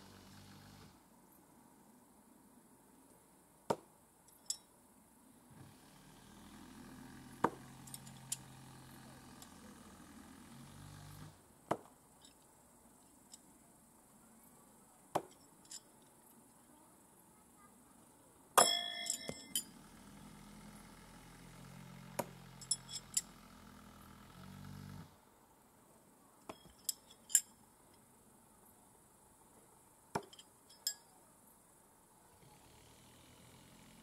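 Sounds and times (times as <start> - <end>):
metallic clinks: 4.3 - 4.7, 7.8 - 8.6, 12.1 - 13.5, 15.3 - 16.1, 18.6 - 19.8, 22.5 - 23.4, 26.4 - 28.0, 30.2 - 31.2
knives striking wooden log: 11.7 - 11.9, 30.1 - 30.4.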